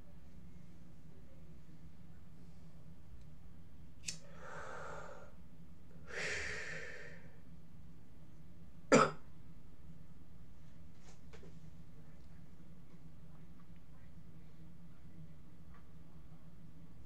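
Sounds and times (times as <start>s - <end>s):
man breathing: 4.2s - 5.4s, 6.0s - 7.4s
man coughing: 8.9s - 9.2s.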